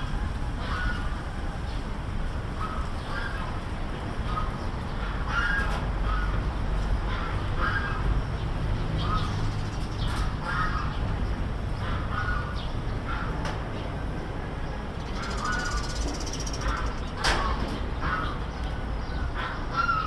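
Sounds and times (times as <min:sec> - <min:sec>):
bird calling: 0:04.2 - 0:06.5, 0:07.1 - 0:11.1, 0:11.8 - 0:13.4, 0:15.0 - 0:20.0.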